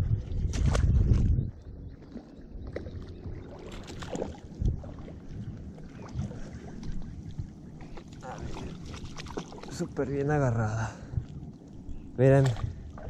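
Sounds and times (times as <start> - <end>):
fish splashing in water: 3.4 - 5.2, 7.8 - 9.8.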